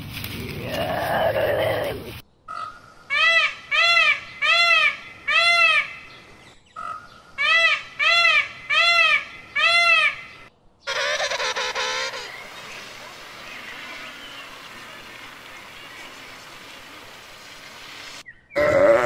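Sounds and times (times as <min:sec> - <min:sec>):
peacock honking calls: 0:10.9 - 0:15.5.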